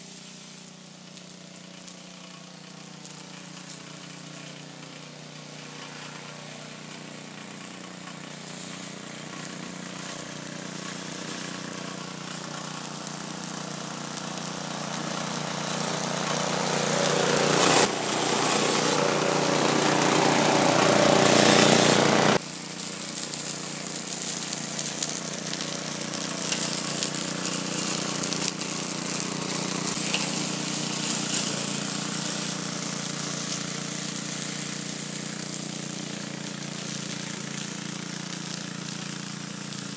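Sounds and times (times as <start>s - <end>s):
lawn mower engine running: 0.0s - 39.9s.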